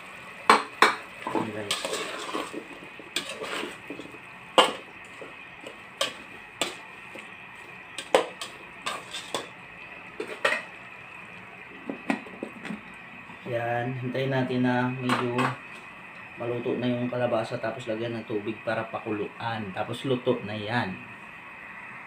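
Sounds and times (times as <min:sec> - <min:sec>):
metal spoon scraping pot: 0:01.6 - 0:05.3, 0:08.0 - 0:09.5.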